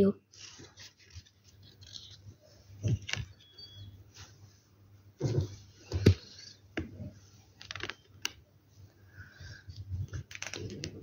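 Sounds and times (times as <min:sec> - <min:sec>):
trading cards shuffling: 0:00.4 - 0:03.5, 0:07.6 - 0:08.4, 0:09.7 - 0:11.0.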